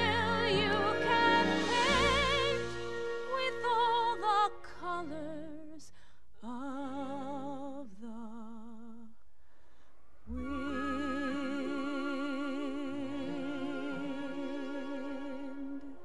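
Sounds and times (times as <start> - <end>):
music accompaniment: 0.0 - 5.8, 10.3 - 16.0
woman singing with vibrato: 0.0 - 9.1, 10.3 - 16.0.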